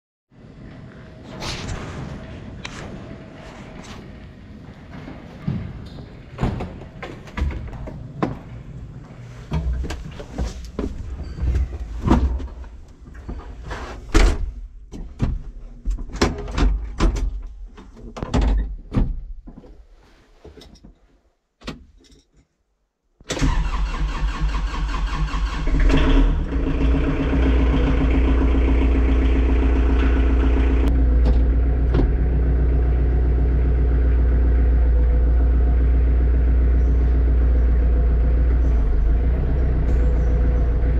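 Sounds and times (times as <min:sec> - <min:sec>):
tractor diesel engine running: 0:23.4 - 0:40.9.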